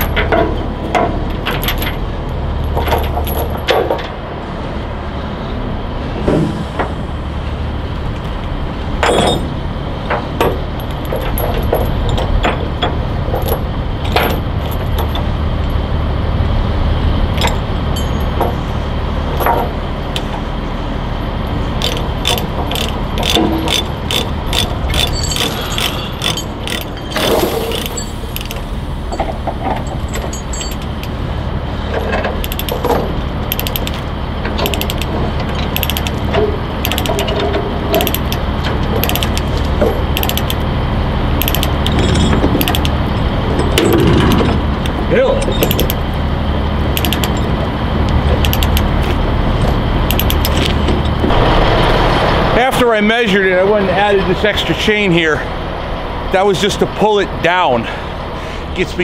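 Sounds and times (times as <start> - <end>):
metal chain clanks and knocks: 0.0 - 2.0, 2.6 - 4.1, 9.0 - 9.5, 10.4 - 15.2, 17.4 - 18.6, 21.8 - 31.2, 32.0 - 34.0, 34.6 - 40.6, 41.4 - 43.0, 43.6 - 46.0, 47.0 - 47.5
steady low hum: 0.0 - 59.0
rapid ratchet clicks: 21.8 - 26.9, 32.4 - 32.9, 33.5 - 34.0, 34.6 - 35.1, 35.7 - 37.3, 37.9 - 38.4, 39.0 - 39.6, 40.2 - 40.6, 41.4 - 42.0, 42.6 - 43.0, 45.6 - 46.0, 47.0 - 47.4, 48.4 - 48.9, 50.1 - 50.7.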